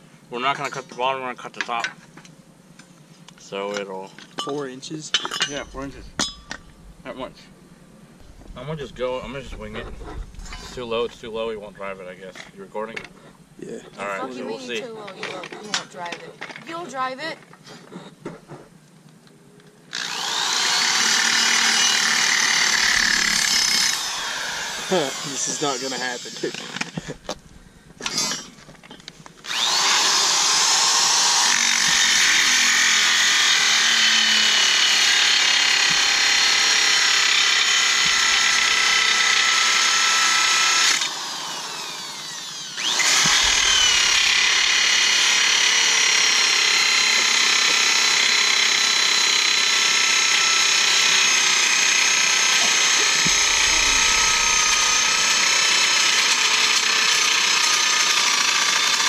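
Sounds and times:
angle grinder cutting steel: 5.2 - 7.1, 19.9 - 27.4, 28.0 - 28.7, 29.4 - 59.0.

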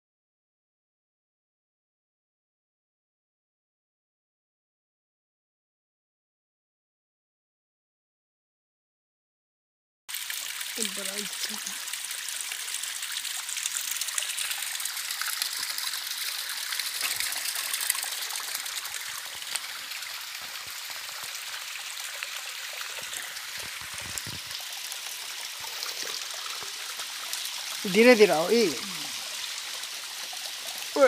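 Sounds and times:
stream water rushing: 10.3 - 31.0.

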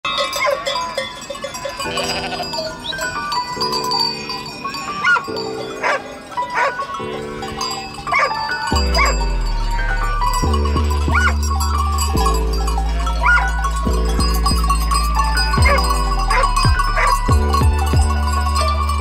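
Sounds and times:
bells ringing: 0.0 - 19.0
sheep bleating: 1.8 - 3.0, 8.2 - 19.0.

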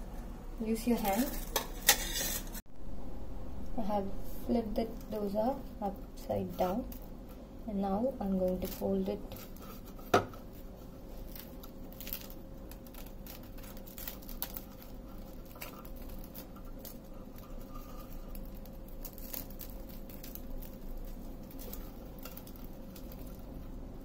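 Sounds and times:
faint steady hum: 0.0 - 24.0
crisp pancake crackling: 4.8 - 24.0.

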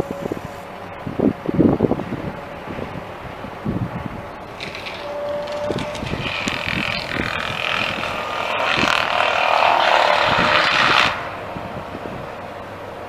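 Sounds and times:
brush mulcher grinding: 4.4 - 13.0.

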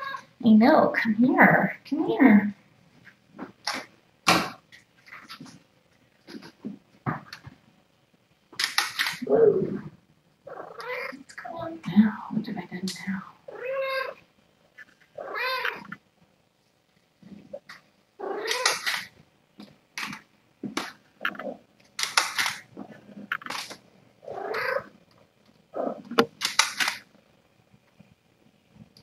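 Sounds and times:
cats mewing: 0.0 - 0.3, 9.2 - 9.9, 10.5 - 11.4, 13.5 - 14.2, 15.2 - 16.0, 18.2 - 19.1, 24.2 - 25.0.

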